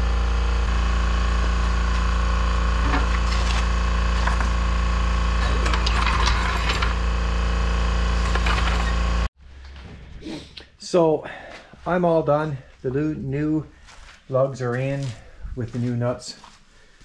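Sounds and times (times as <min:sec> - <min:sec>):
steady mechanical hum: 0:00.0 - 0:09.6
scraping and knocking: 0:02.7 - 0:07.1, 0:08.1 - 0:10.2.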